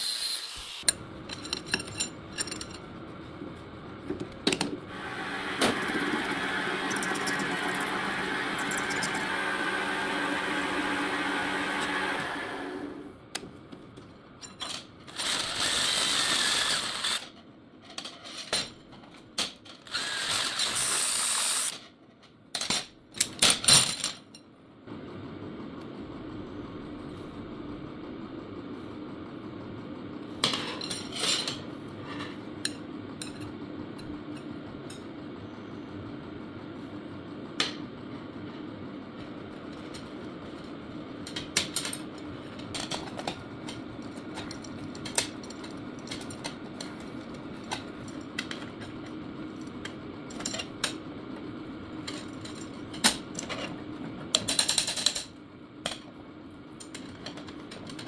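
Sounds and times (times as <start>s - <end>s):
metal lathe running: 4.9s - 13.0s.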